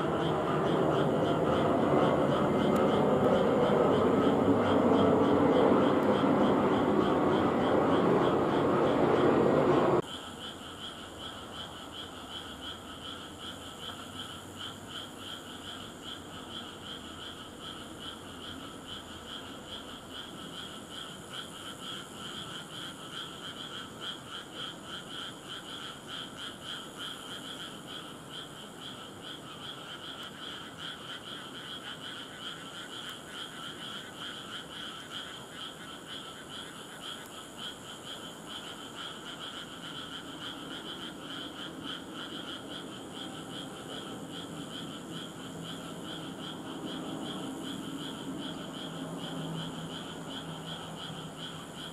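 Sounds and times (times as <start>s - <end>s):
frogs calling: 0.0s - 51.9s.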